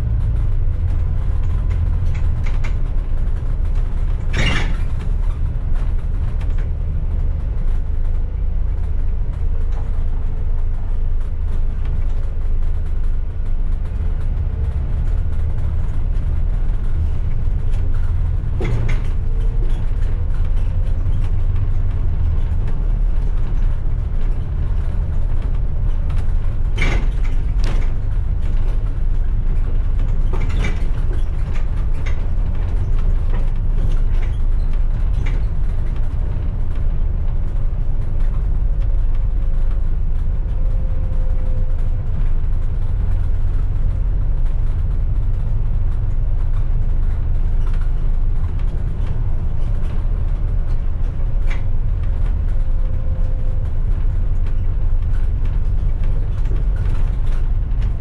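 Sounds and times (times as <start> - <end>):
bus engine rumbling: 0.0 - 58.0
short knocks and rattles: 0.0 - 58.0.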